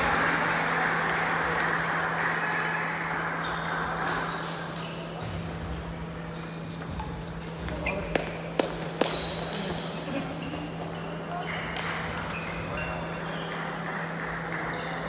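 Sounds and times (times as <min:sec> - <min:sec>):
table tennis balls clicking: 0:03.8 - 0:10.1, 0:10.7 - 0:15.0.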